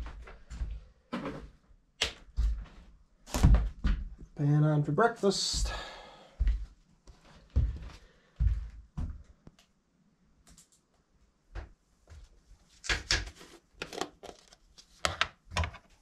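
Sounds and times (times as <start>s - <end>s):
footsteps on wooden floorboards: 2.3s - 4.4s, 5.6s - 9.4s.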